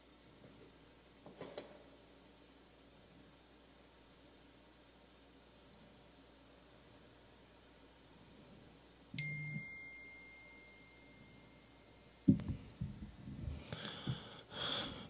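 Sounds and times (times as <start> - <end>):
bright bell ding: 9.2 - 12.0.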